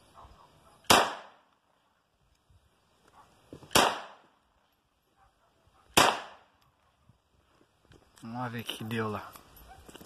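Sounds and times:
pistol shots with echo: 0:00.8 - 0:01.4, 0:03.7 - 0:04.2, 0:05.9 - 0:06.5.

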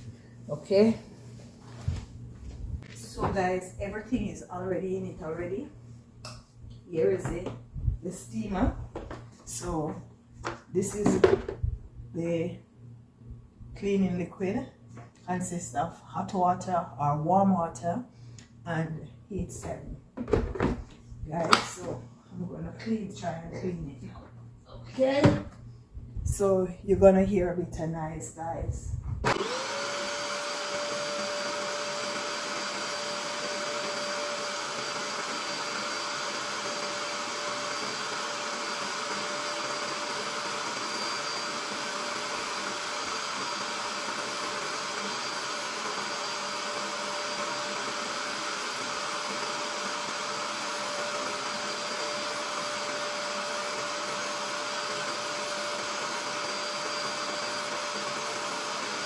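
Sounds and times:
steam cleaner motor whining: 0:29.2 - 0:59.0.

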